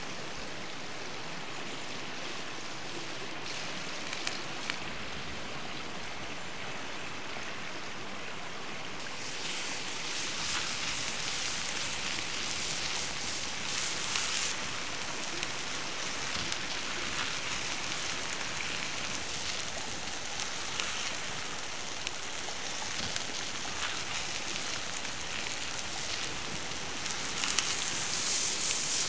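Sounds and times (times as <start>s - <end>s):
meat sizzling in a skillet: 2.6s - 5.1s, 9.0s - 29.0s.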